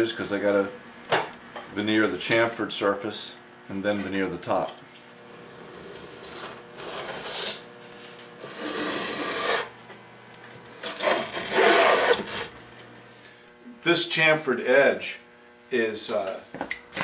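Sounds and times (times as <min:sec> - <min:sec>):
hand plane shaving wood: 0:05.3 - 0:07.6, 0:08.4 - 0:09.7, 0:10.7 - 0:12.5.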